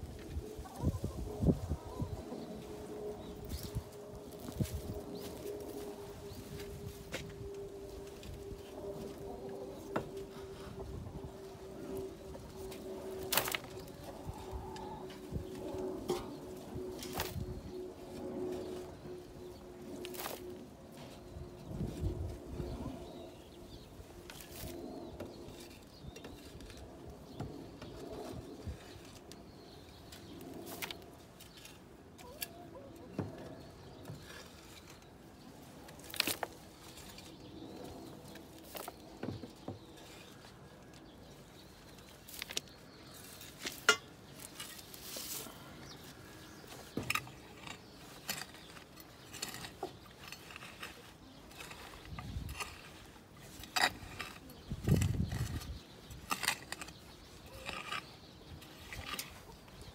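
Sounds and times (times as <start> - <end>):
rake scratching through litter: 0.3 - 9.6, 10.2 - 23.5, 41.8 - 59.9
hand tool scraping through litter: 46.4 - 59.5.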